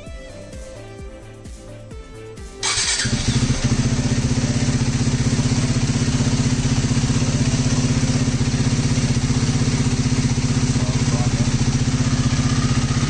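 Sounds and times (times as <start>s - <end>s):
motorcycle engine idling: 2.6s - 13.0s.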